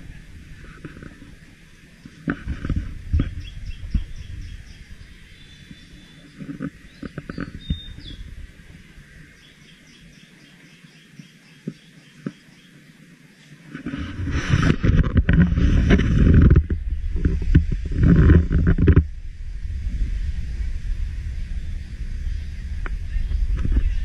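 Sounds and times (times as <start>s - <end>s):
microphone bumps and rumbles: 0.0s - 9.2s, 13.7s - 24.0s
birds chirping: 0.0s - 15.4s
whistled bird notes: 3.3s - 8.3s.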